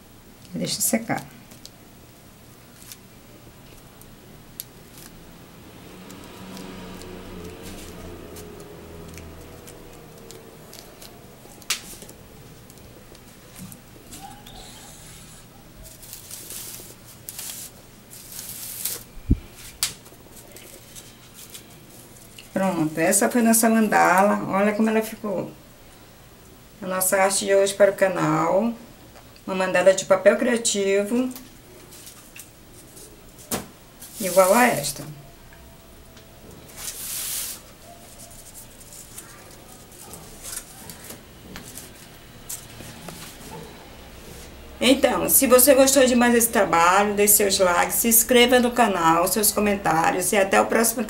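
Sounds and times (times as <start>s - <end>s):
paper rustling and crinkling: 2.7s - 3.1s, 15.8s - 22.4s, 31.8s - 34.8s, 36.6s - 44.5s
handling rustle: 36.6s - 44.5s.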